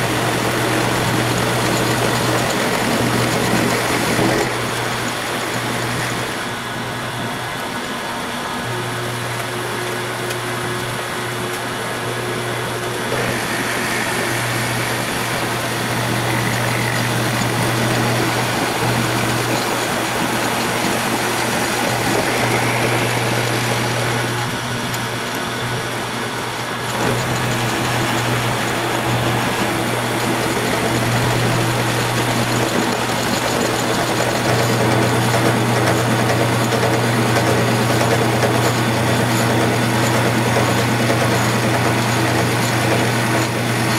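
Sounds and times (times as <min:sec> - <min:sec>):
milling cutter cutting metal: 0:00.0 - 0:06.5, 0:11.5 - 0:43.9
motor hum: 0:00.0 - 0:43.9.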